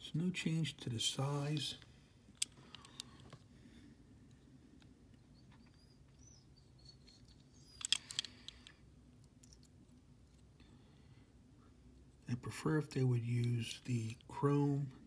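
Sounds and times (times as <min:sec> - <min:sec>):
low room hum: 0:00.0 - 0:15.0
faint high chirps: 0:05.1 - 0:08.0
toy cars clicking and tapping: 0:07.0 - 0:08.8.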